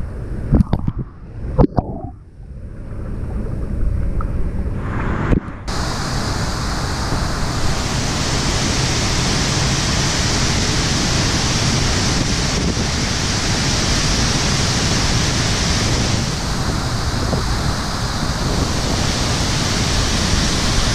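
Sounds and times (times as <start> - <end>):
waterfall rushing: 5.7 - 20.9.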